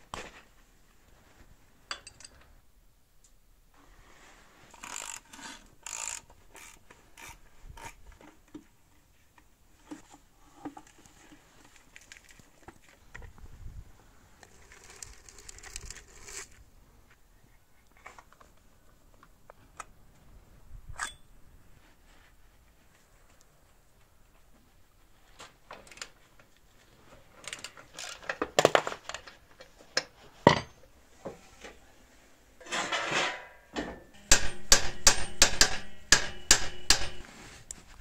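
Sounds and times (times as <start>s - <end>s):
tool clicks and metal clinks: 1.9s - 2.4s, 21.0s - 21.3s
metal parts scraping: 4.7s - 6.7s.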